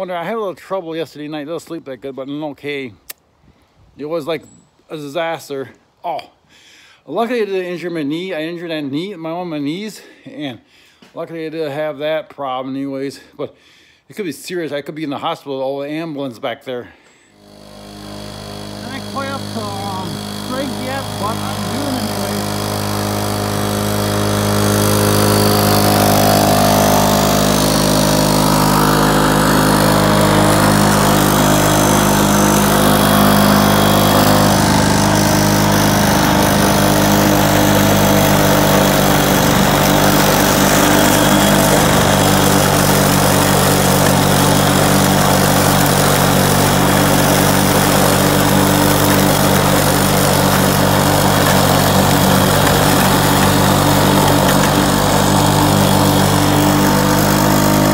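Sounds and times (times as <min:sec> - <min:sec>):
lawn mower engine running: 0:17.4 - 0:57.9.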